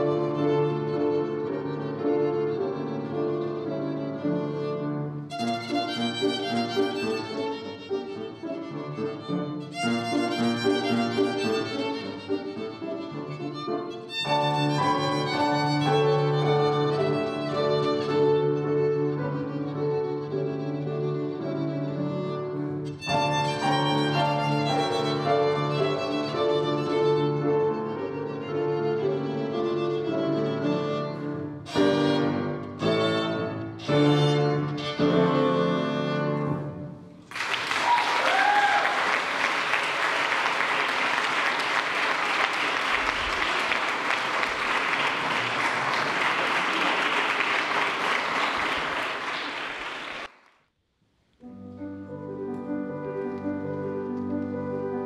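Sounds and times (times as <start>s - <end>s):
violin with piano: 0.0s - 37.2s, 51.4s - 55.0s
audience applauding: 37.2s - 50.4s.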